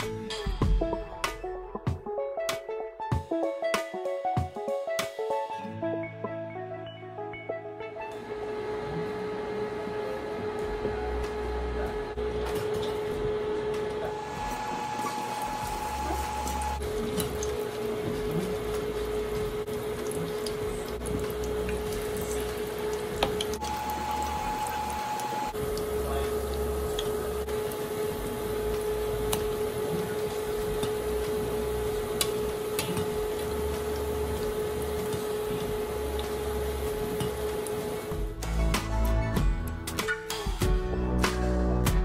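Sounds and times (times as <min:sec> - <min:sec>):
cooktop hum and whine: 0:08.1 - 0:38.4
food sizzling in hot oil: 0:14.1 - 0:38.1
utensils clicking against pan: 0:32.2 - 0:33.5.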